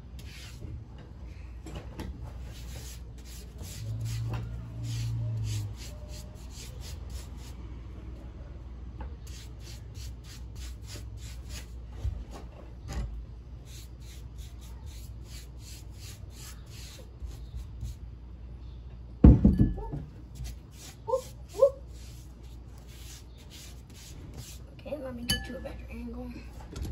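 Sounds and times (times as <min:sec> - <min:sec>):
foam brush rubbing on wood: 0:02.4 - 0:07.6, 0:13.7 - 0:18.0, 0:20.4 - 0:24.7
loud knocks: 0:19.2 - 0:20.1.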